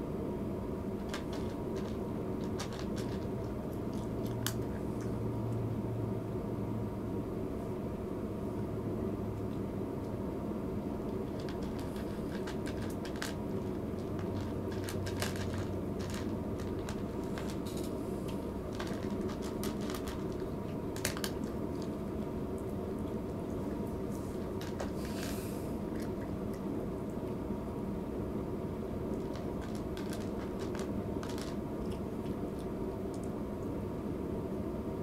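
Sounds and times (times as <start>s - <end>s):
low mechanical hum: 0.0s - 35.0s
cat chewing and licking: 1.0s - 5.2s, 11.1s - 27.4s, 29.0s - 33.4s.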